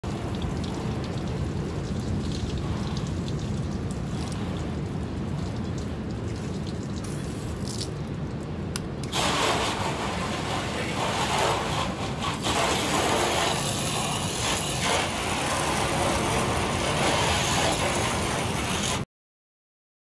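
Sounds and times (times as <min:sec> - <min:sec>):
hose water running into bucket: 0:00.0 - 0:08.0, 0:09.0 - 0:19.0
steady low rumble: 0:00.0 - 0:18.8
hissy water rush: 0:00.0 - 0:19.0.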